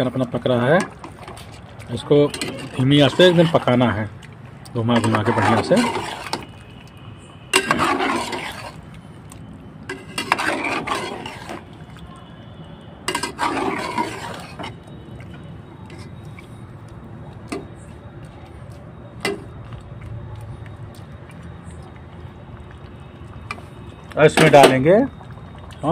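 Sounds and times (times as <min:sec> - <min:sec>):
spatula scraping pot: 0:02.2 - 0:03.9, 0:04.8 - 0:06.5, 0:07.5 - 0:08.8, 0:09.9 - 0:11.7, 0:13.1 - 0:14.8.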